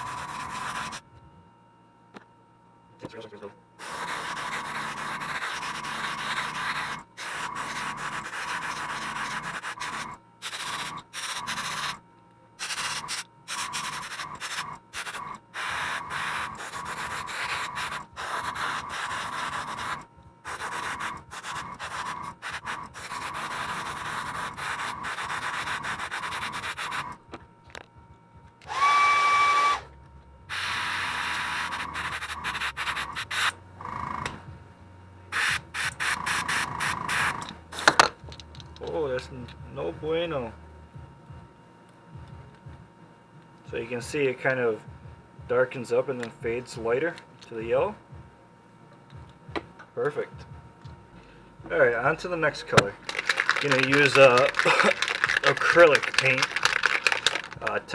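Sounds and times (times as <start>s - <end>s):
airbrush hissing bursts: 0.0s - 1.0s, 3.8s - 12.0s, 12.6s - 27.2s, 30.5s - 33.6s, 35.3s - 37.9s
whistling tone: 28.8s - 29.9s.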